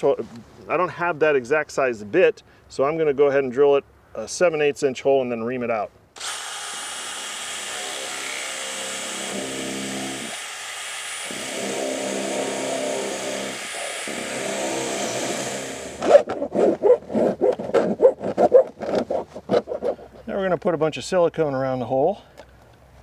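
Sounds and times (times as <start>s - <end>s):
cordless drill boring through siding: 6.2s - 16.1s
rasping back-and-forth strokes: 6.2s - 20.2s.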